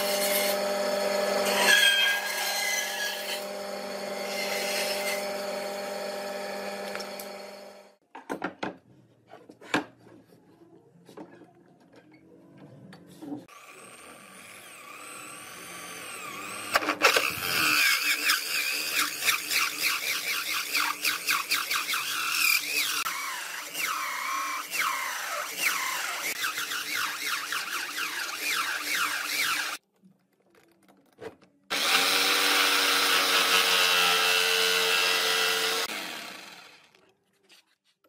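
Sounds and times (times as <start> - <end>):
band saw cutting wood: 0.0 - 8.0, 13.5 - 29.8, 31.7 - 37.0
drill with sanding disc grinding: 0.0 - 8.0, 13.5 - 29.8, 31.7 - 37.0.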